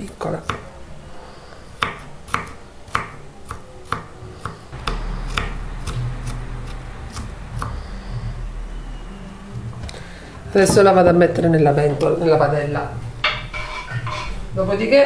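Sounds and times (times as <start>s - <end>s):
low steady hum: 0.0s - 15.0s
knife chopping on wooden board: 0.4s - 0.7s, 1.8s - 7.8s.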